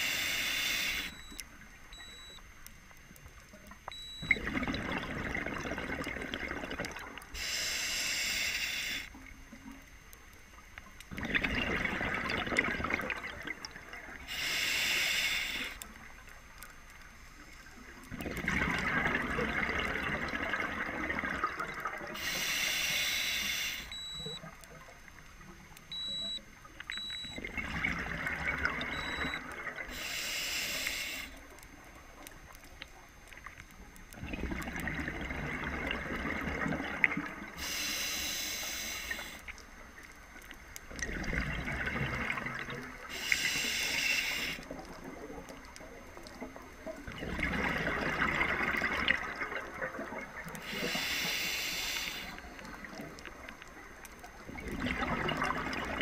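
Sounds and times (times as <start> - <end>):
regulator inhalation hiss: 0.0 - 1.2, 7.3 - 9.2, 14.2 - 15.8, 22.1 - 23.9, 29.9 - 31.4, 37.6 - 39.5, 43.1 - 44.7, 50.6 - 52.9
exhaled bubbles gurgling: 3.8 - 7.6, 10.5 - 16.7, 17.7 - 23.0, 23.6 - 30.1, 30.9 - 56.0.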